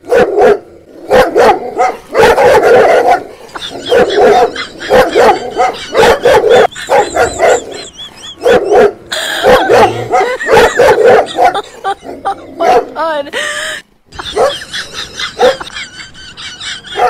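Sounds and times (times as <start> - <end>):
dog barking: 0.0 - 11.7, 12.6 - 12.9, 14.2 - 15.7.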